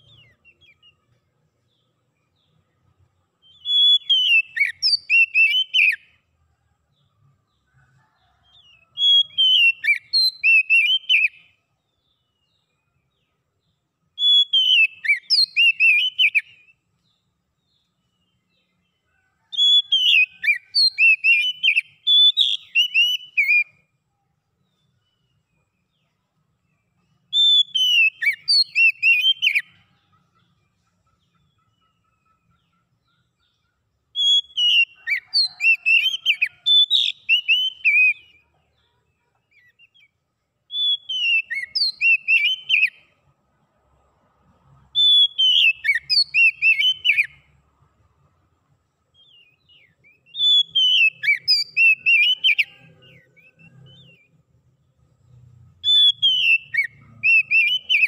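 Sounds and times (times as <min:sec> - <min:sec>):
bird singing whistled song: 0:00.0 - 0:02.6, 0:03.3 - 0:06.2, 0:08.4 - 0:18.8, 0:19.5 - 0:23.9, 0:26.9 - 0:30.5, 0:31.3 - 0:38.5, 0:39.5 - 0:43.2, 0:45.0 - 0:47.5, 0:49.1 - 0:58.0.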